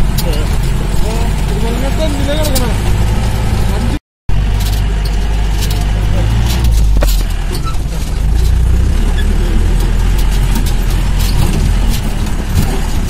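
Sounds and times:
car engine running: 0:00.0 - 0:13.0
body knocks and rattles: 0:04.5 - 0:08.8, 0:09.6 - 0:13.0.

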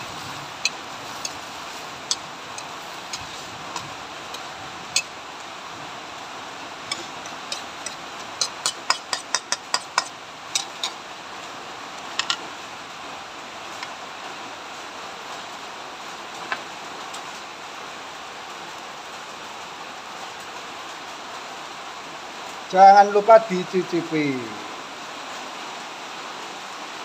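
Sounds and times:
steady hiss: 0:00.0 - 0:27.0
metal spatula knocking on wok: 0:06.9 - 0:11.0.

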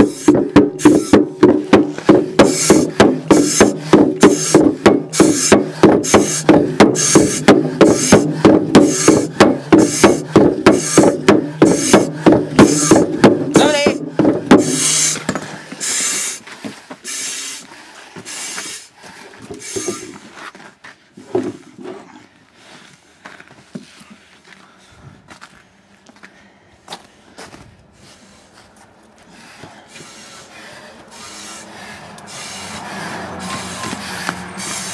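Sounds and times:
rapid hard knocks: 0:00.0 - 0:15.6
hissing breaths of exertion: 0:00.0 - 0:20.3, 0:29.2 - 0:34.9
faint footsteps: 0:00.0 - 0:31.1.

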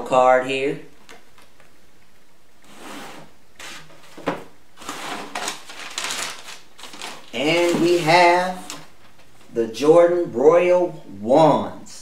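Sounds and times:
cardboard box scraping: 0:02.7 - 0:04.2, 0:04.8 - 0:06.3
tissue paper rustling: 0:04.8 - 0:09.5.

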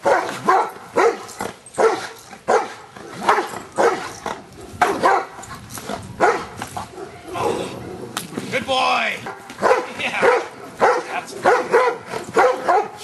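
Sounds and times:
dog barking: 0:00.0 - 0:04.1, 0:04.8 - 0:05.4, 0:06.2 - 0:07.2, 0:09.2 - 0:13.0.

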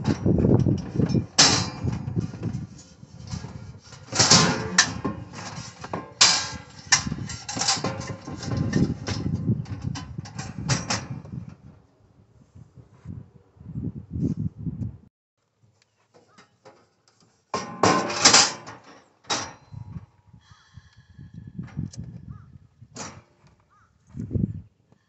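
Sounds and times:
metal camp stove clattering: 0:00.0 - 0:11.4, 0:17.5 - 0:19.8, 0:23.0 - 0:23.3.

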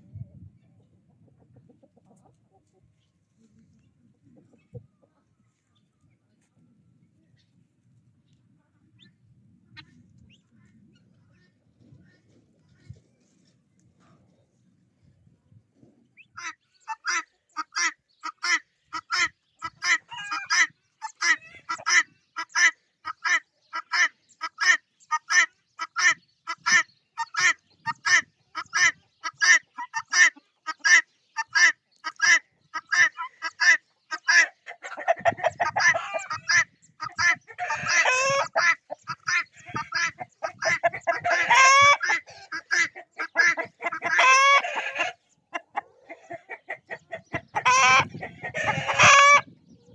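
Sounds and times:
guinea fowl calling: 0:16.2 - 0:49.9.

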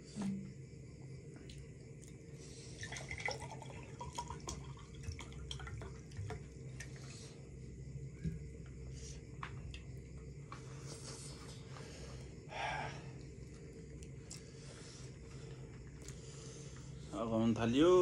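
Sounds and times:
low hum: 0:00.0 - 0:17.1
chewing food: 0:15.6 - 0:16.3.

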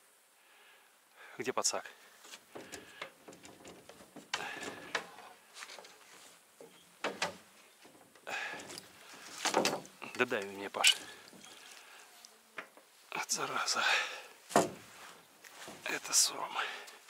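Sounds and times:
fishing gear clattering in a boat: 0:02.5 - 0:06.0, 0:06.6 - 0:12.0, 0:14.5 - 0:15.0.

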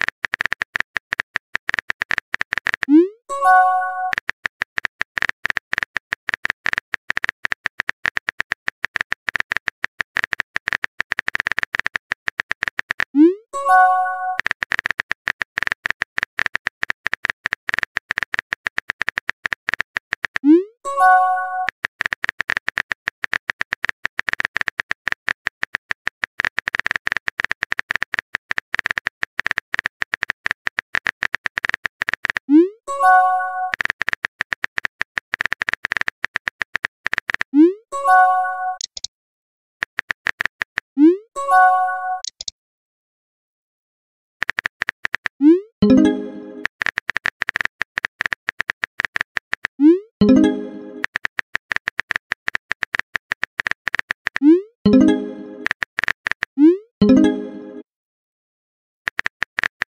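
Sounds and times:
phone keyboard typing clicks: 0:00.0 - 0:39.1, 0:39.8 - 0:41.0, 0:42.1 - 0:42.5, 0:44.4 - 0:57.8, 0:59.1 - 0:59.9
message sent chime: 0:41.4 - 0:42.3, 0:45.8 - 0:46.7, 0:50.2 - 0:51.0, 0:54.9 - 0:55.7, 0:57.0 - 0:57.8.

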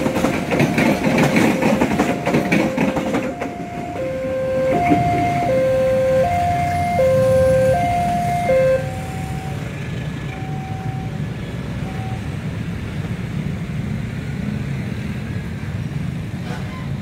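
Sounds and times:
two-tone crossing alarm chime: 0:00.0 - 0:09.7, 0:10.3 - 0:11.2, 0:11.8 - 0:12.3
low rumble of traffic: 0:00.0 - 0:17.0.

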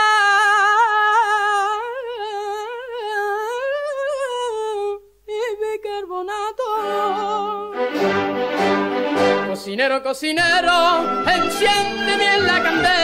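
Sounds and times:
man singing with heavy vibrato: 0:03.9 - 0:08.1, 0:09.2 - 0:13.0
band playing: 0:06.8 - 0:09.7, 0:10.5 - 0:13.0.

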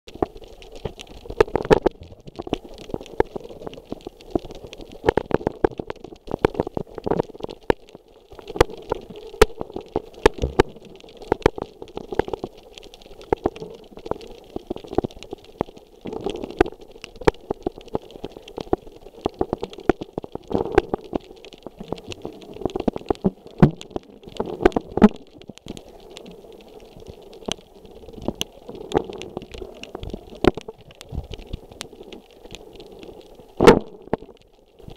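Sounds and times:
underwater clicks and crackles: 0:00.1 - 0:34.9
muffled underwater hiss: 0:08.3 - 0:34.9.

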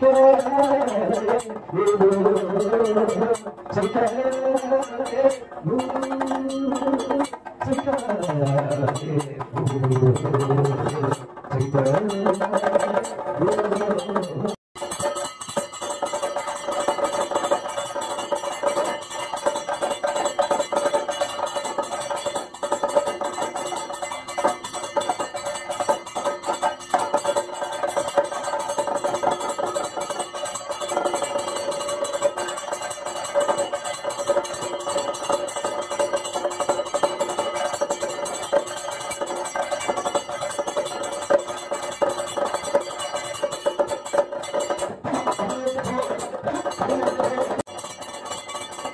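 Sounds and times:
drum beaten in steady rhythm: 0:00.0 - 0:48.9
hand gong clanging: 0:13.7 - 0:48.9.

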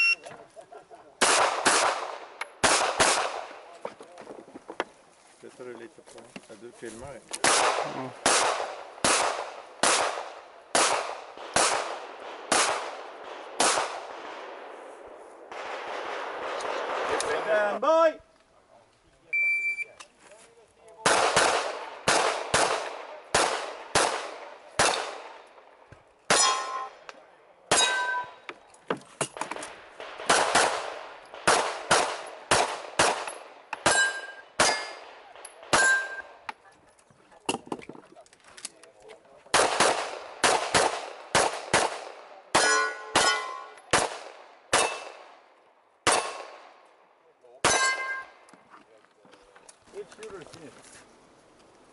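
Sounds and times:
pistol shots echoing: 0:01.2 - 0:03.6, 0:07.4 - 0:14.7, 0:21.0 - 0:25.7, 0:26.3 - 0:27.1, 0:27.7 - 0:28.5, 0:29.9 - 0:36.4, 0:39.5 - 0:46.9, 0:47.6 - 0:48.4
bullets ringing on steel plates: 0:26.3 - 0:27.0, 0:27.7 - 0:28.5, 0:33.8 - 0:35.0, 0:35.7 - 0:36.3, 0:42.6 - 0:43.8, 0:47.6 - 0:48.4.

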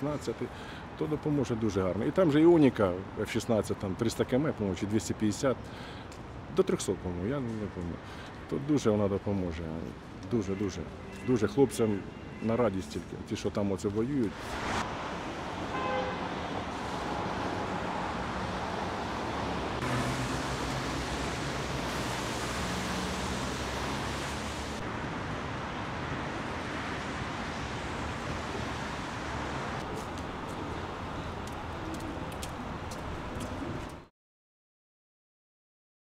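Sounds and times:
road traffic hiss: 0:00.0 - 0:01.5, 0:04.7 - 0:06.5, 0:07.5 - 0:12.3, 0:13.8 - 0:34.0.

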